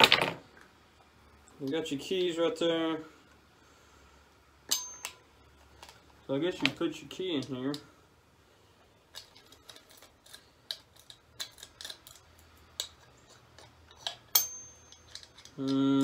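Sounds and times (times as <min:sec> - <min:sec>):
person humming: 0:15.6 - 0:16.0.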